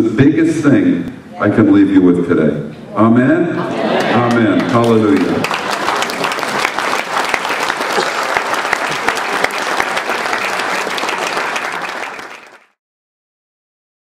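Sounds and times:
audience applauding: 4.0 - 12.8.

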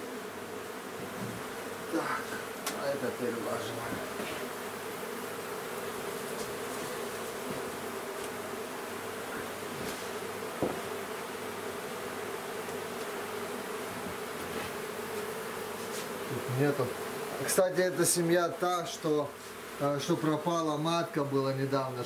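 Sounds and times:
honeybees humming: 0.0 - 22.0
sharp knock: 10.6 - 10.8.

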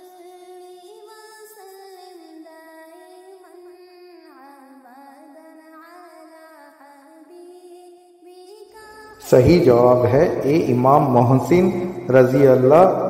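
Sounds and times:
wordless vocal humming: 9.1 - 13.0.

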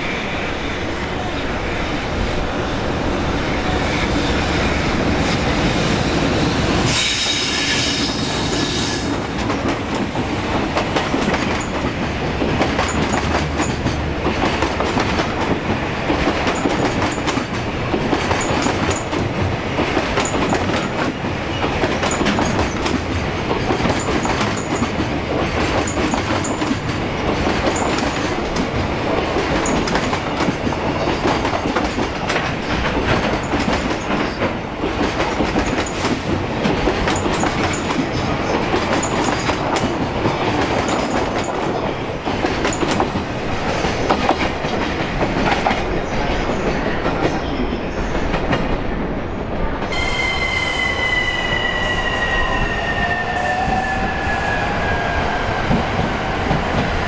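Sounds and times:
electric locomotive whine: 0.0 - 14.3, 35.8 - 57.0
train wheels clacking on rail joints: 4.1 - 48.8.

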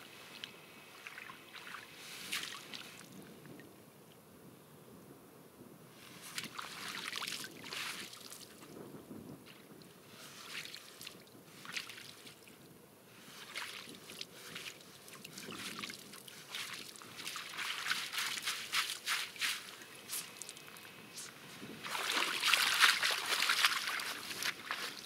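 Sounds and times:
river water splashing: 0.9 - 3.1, 6.3 - 8.5, 13.3 - 25.0.

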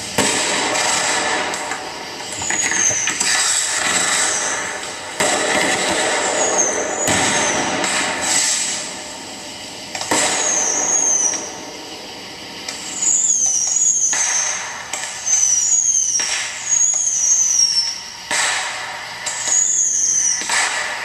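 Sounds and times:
firework bangs: 0.1 - 8.8, 9.9 - 11.3, 18.3 - 21.0
firework whistles falling in pitch: 2.4 - 4.8, 6.0 - 8.8, 10.2 - 11.6, 12.8 - 18.0, 19.3 - 20.8.

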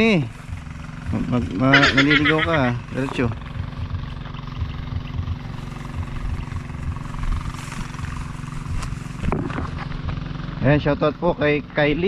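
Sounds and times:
engine humming: 0.0 - 12.0
irregular low rumble: 0.0 - 12.0.

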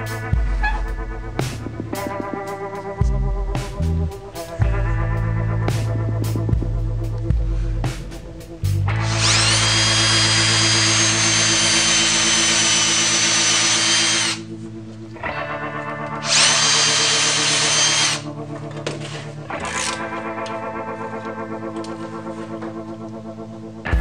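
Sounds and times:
power drill boring into wood: 9.0 - 14.5, 16.2 - 18.2, 19.6 - 20.0.

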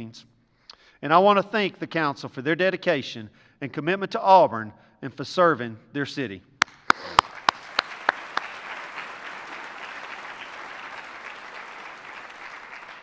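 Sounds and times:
audience applauding: 6.6 - 13.0
sharp hand claps close by: 6.6 - 13.0.

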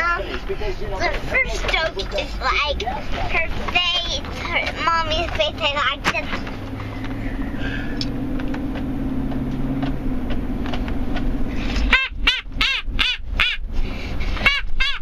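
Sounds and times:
car cabin drone: 0.0 - 15.0
child laughing: 4.2 - 5.1.

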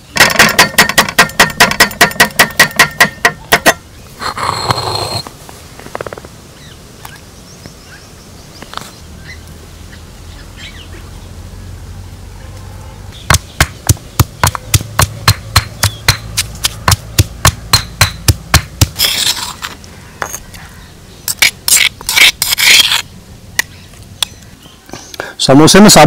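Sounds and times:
scraping: 0.2 - 5.3, 13.3 - 20.7, 21.3 - 23.1.

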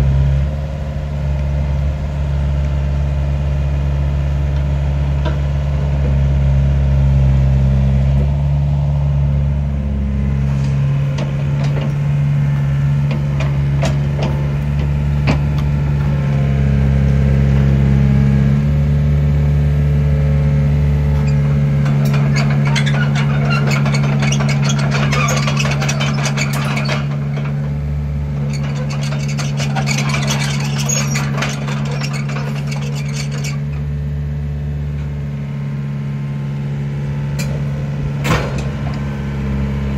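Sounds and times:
excavator diesel engine running: 0.0 - 39.9
metallic clattering and rattling: 10.6 - 16.1, 21.2 - 33.9.

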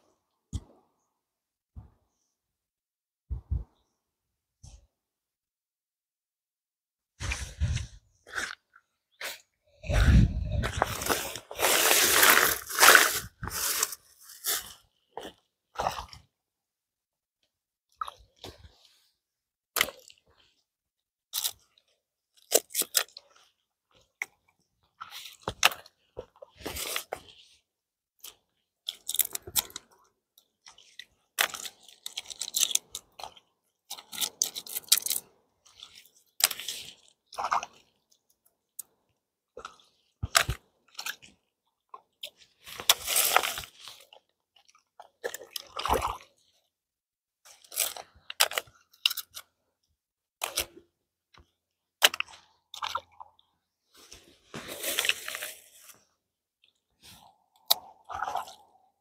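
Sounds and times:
mussel shells crunching and clicking: 10.7 - 14.6, 21.3 - 23.3, 28.2 - 30.0, 30.7 - 38.0, 47.5 - 49.5, 50.4 - 53.5, 57.3 - 58.9.

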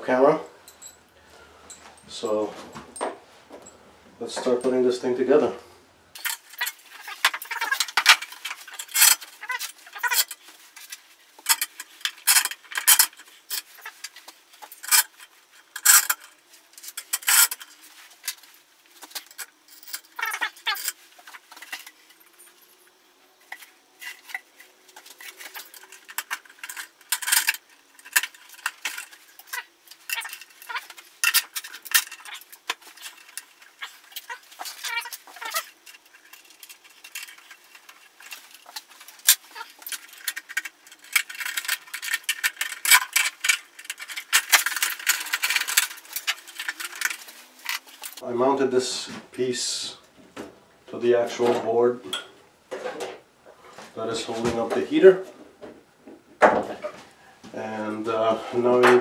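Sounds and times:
metal parts clinking: 6.2 - 48.2.

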